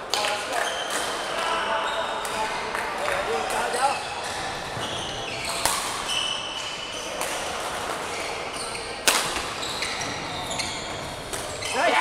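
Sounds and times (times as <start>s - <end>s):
shoes squeaking on court floor: 1.7s - 12.0s
racket striking shuttlecock: 5.6s - 6.1s, 9.0s - 9.5s.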